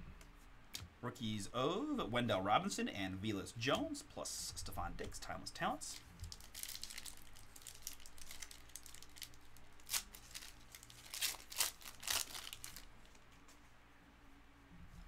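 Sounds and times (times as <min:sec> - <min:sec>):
card pack wrapper tearing: 0:05.9 - 0:13.2.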